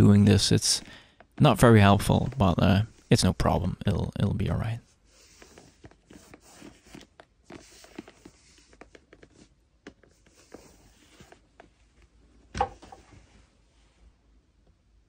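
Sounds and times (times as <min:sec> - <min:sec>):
cloth rubbing on leather boot: 0:05.0 - 0:09.5, 0:10.1 - 0:11.7.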